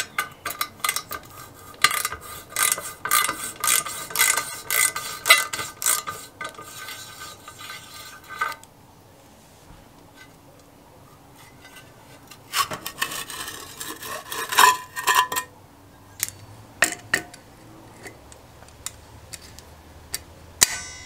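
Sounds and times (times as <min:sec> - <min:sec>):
metal cover scraping and rattling: 0:00.0 - 0:08.7, 0:11.4 - 0:15.5
metal clank with ring: 0:20.6 - 0:21.0.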